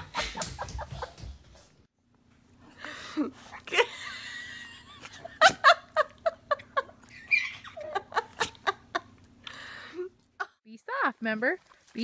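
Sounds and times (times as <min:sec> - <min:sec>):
baby laughing: 0:07.0 - 0:08.6.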